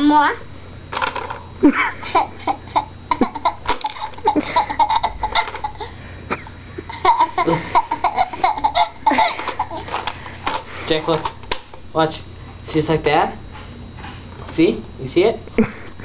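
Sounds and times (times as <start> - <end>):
child laughing: 1.6 - 10.1.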